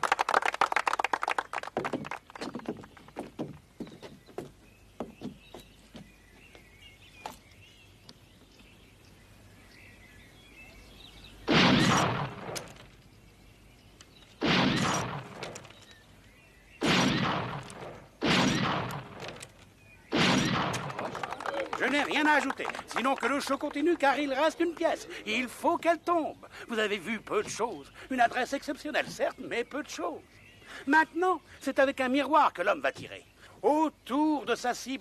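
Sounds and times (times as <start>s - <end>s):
birds chirping: 0.9s - 35.0s
loud gunshots with ringing echo: 11.5s - 12.7s, 14.4s - 15.6s, 16.8s - 19.4s, 20.1s - 21.2s.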